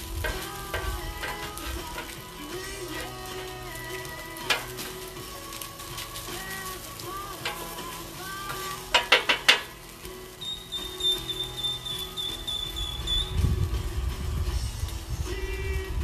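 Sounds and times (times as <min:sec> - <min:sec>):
meat sizzling on a griddle: 0:00.0 - 0:16.0
music: 0:00.0 - 0:16.0
metal spatula tapping and scraping: 0:04.5 - 0:04.9, 0:08.5 - 0:09.8.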